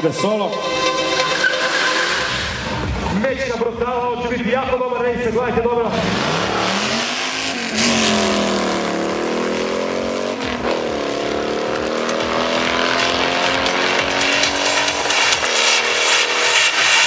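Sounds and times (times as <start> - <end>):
racing car engines accelerating: 5.6 - 17.0.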